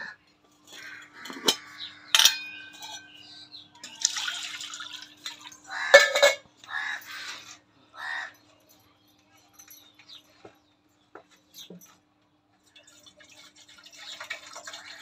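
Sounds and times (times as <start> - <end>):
metal pots clinking on concrete: 0.5 - 7.2
pots clattering: 0.6 - 6.5.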